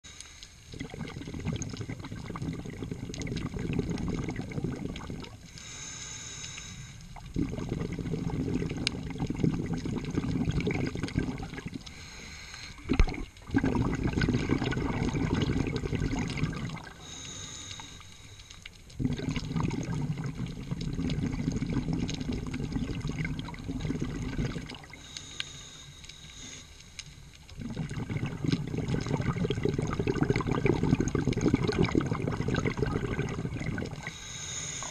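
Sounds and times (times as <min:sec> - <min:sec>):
bubbling exhales underwater: 0:00.7 - 0:05.5, 0:07.2 - 0:12.0, 0:12.8 - 0:17.2, 0:19.0 - 0:25.1, 0:27.5 - 0:34.9
diver breathing through regulator: 0:05.4 - 0:07.1, 0:11.8 - 0:13.0, 0:16.9 - 0:18.7, 0:24.9 - 0:27.3, 0:34.0 - 0:34.9.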